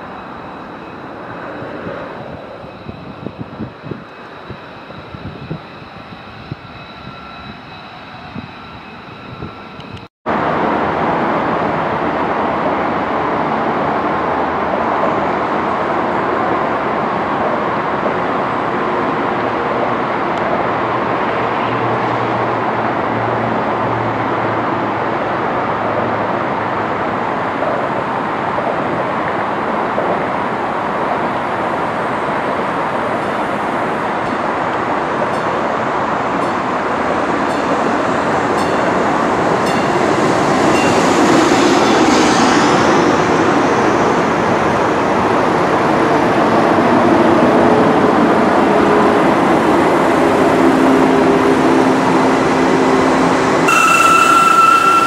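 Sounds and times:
jet engine whining: 0.0 - 10.1, 53.2 - 55.0
approaching train rushing: 0.0 - 55.0.

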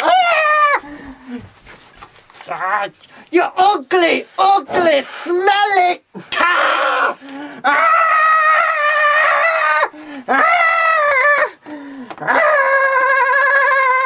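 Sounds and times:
person wailing: 0.0 - 1.4, 4.4 - 11.6.

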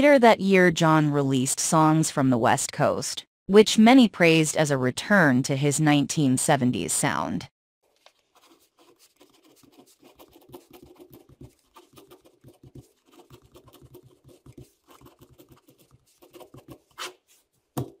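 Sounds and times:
pen scratching on paper: 8.2 - 17.5.

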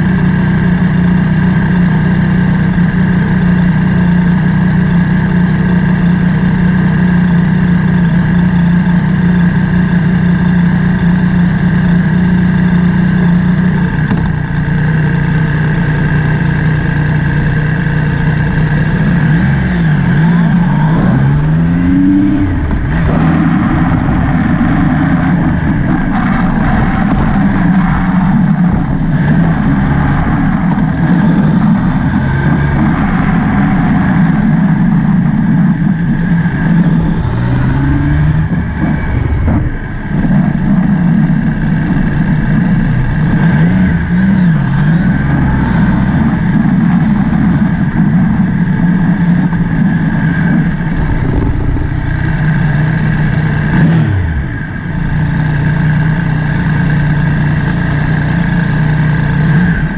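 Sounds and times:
motorbike engine revving: 0.0 - 59.9.

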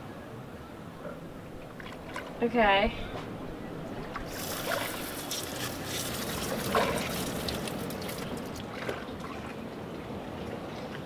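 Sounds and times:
hose water spraying on motor: 4.3 - 8.5.

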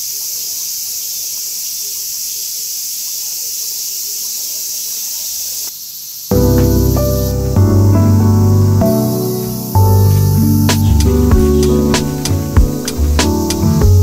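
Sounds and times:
insects chirring: 0.0 - 14.0
hip-hop beat with chords: 6.3 - 14.0.

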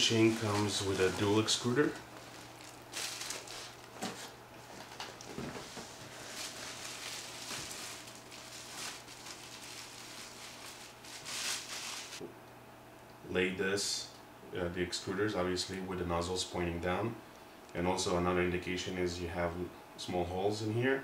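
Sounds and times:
plastic wrapping crinkling: 0.0 - 12.2
faint steady hum: 0.0 - 21.0.

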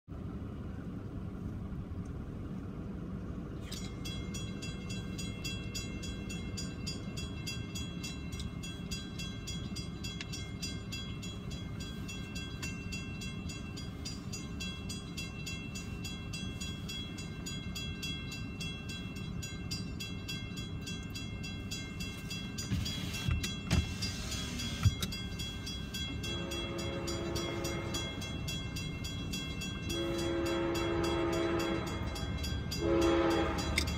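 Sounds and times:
low background rumble: 0.1 - 33.9
railroad crossing bell ringing: 3.6 - 33.9
train horn: 26.2 - 28.4, 29.9 - 33.9.

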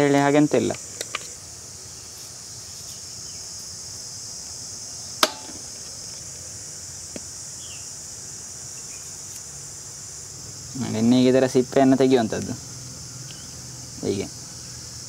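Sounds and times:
insects chirring: 0.0 - 15.0
sharp knock: 5.2 - 5.6.

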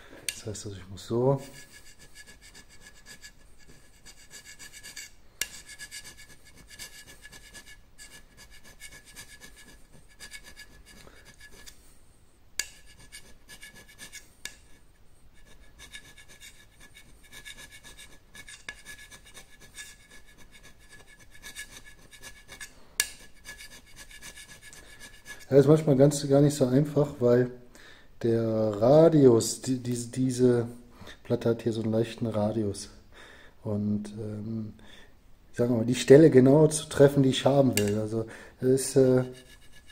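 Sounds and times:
blade scraping metal: 1.4 - 11.8, 12.6 - 14.8, 15.4 - 25.9, 37.6 - 38.1.

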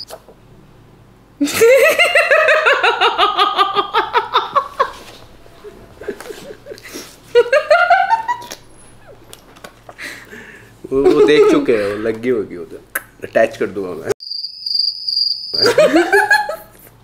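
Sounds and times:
woman laughing hard: 1.4 - 5.1, 5.9 - 8.5, 15.6 - 17.0.

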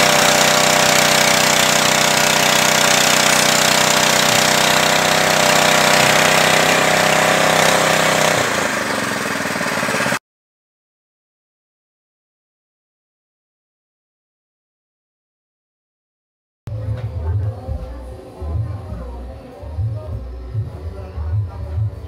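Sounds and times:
small petrol engine running: 0.0 - 10.2.

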